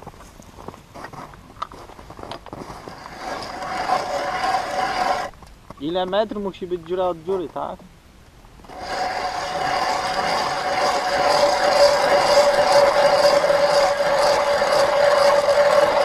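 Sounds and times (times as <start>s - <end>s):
ice auger drilling: 2.5s - 5.3s, 8.6s - 16.0s.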